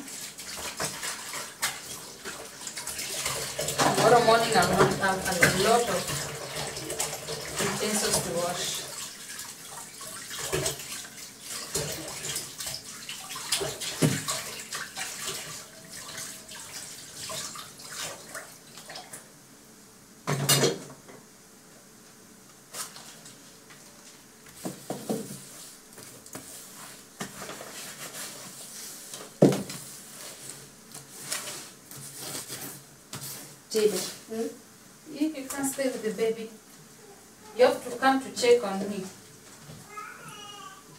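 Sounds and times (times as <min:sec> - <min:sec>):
water running and splashing: 0:00.0 - 0:19.3.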